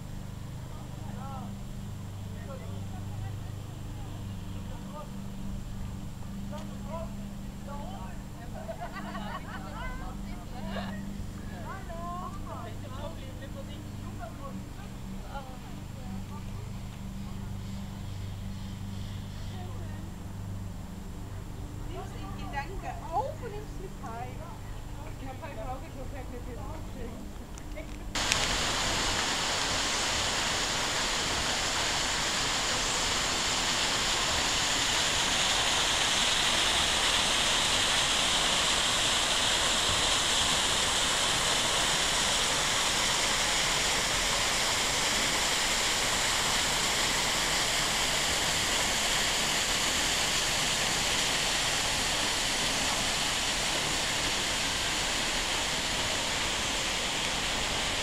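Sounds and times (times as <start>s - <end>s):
small waterfall rushing: 28.2s - 58.0s.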